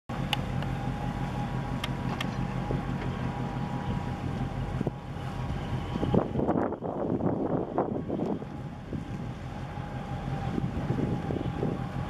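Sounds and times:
ship rumble: 0.1 - 12.0
wind buffeting microphone: 3.8 - 12.0.

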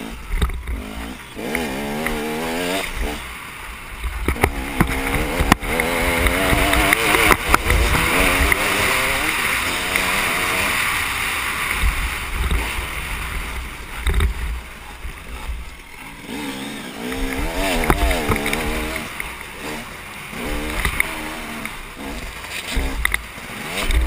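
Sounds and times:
dirt bike engine revving: 0.0 - 24.0
sharp knocks over bumps: 4.0 - 10.3, 17.1 - 19.4, 20.4 - 24.0.

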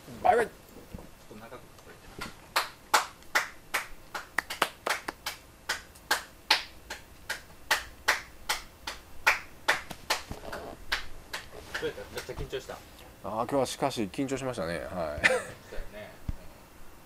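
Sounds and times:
hands clapping: 2.2 - 12.5.

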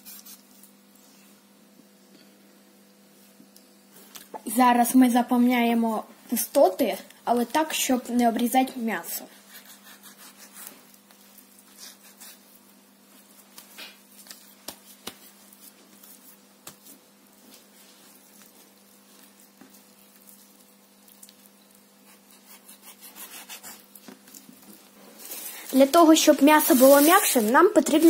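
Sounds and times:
wet squishing of raw meat: 19.2 - 21.6.

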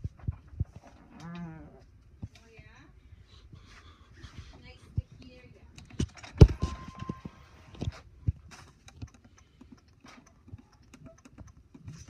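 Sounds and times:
handling clicks and taps: 5.2 - 12.0
short steady beep: 6.6 - 7.4.

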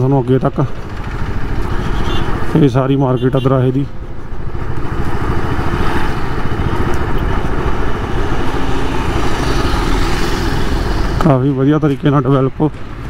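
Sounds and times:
motorcycle engine running: 0.0 - 2.5
road noise: 0.0 - 13.0.

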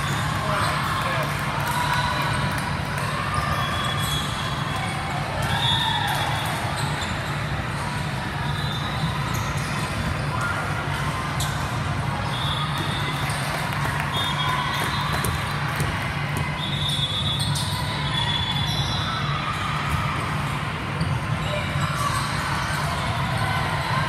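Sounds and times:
general hubbub: 0.0 - 24.0
volleyballs struck and bouncing: 14.8 - 16.6.

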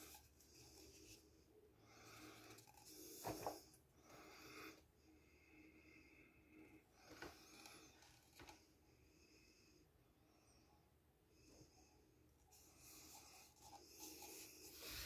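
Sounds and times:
soft rubbing: 12.5 - 15.0.

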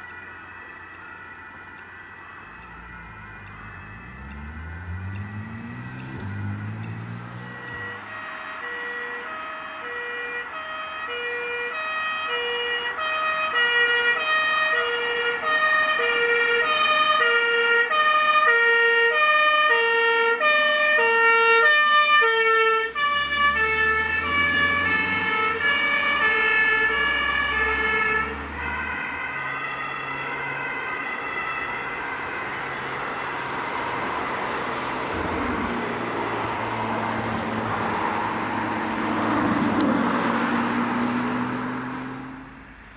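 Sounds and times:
van engine: 0.0 - 8.8, 18.8 - 30.6, 31.5 - 42.9
two-tone ambulance siren: 0.0 - 42.9.

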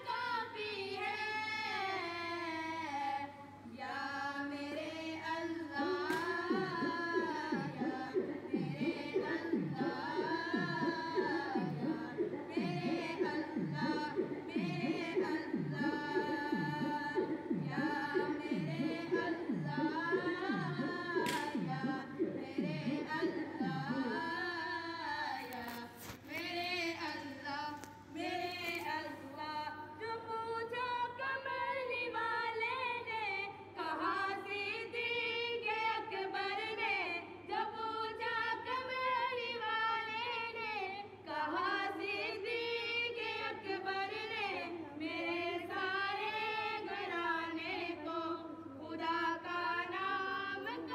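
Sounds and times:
unaccompanied devotional singing: 0.0 - 50.9
low swooping pulse: 5.8 - 24.4.

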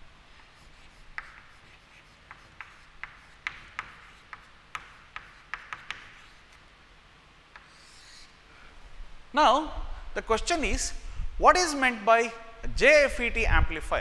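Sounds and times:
chalk scraping: 0.3 - 6.6, 7.6 - 8.4
chalk tapping on chalkboard: 0.4 - 6.6, 7.5 - 8.3.

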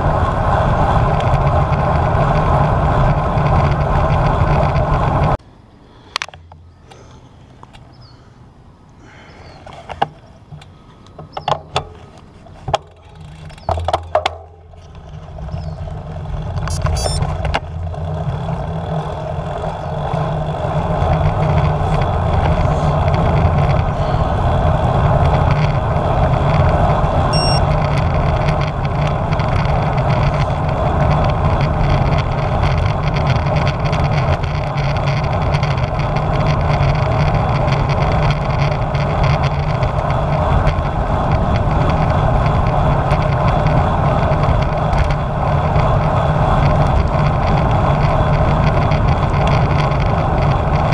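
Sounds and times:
wind and road noise: 0.0 - 50.9.

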